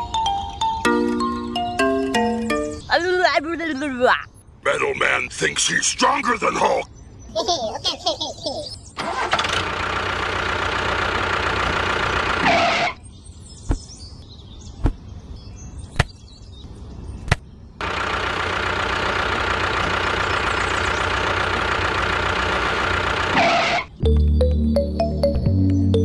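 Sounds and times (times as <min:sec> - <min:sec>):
tractor engine running: 0:09.0 - 0:12.9, 0:17.8 - 0:24.3.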